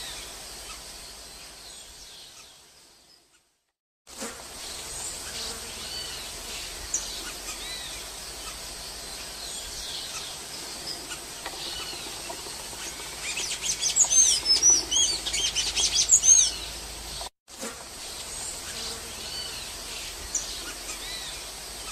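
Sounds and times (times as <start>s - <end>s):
bird singing high chirps: 9.4s - 16.8s.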